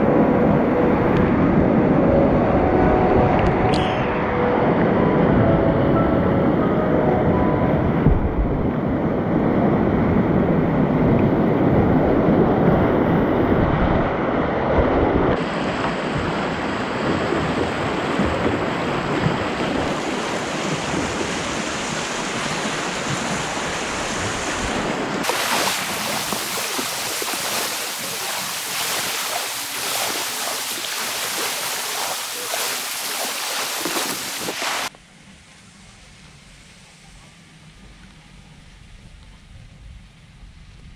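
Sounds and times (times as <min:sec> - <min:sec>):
water splashing around boat bow: 0:15.4 - 0:34.9
whitewater rapids rushing: 0:15.4 - 0:34.9.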